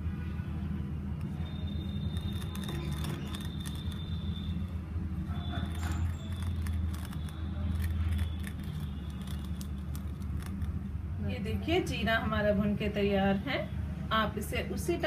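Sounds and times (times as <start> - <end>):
small clicks and crackles: 2.1 - 4.1, 5.6 - 10.8
rolling pin crushing seeds: 5.7 - 10.8.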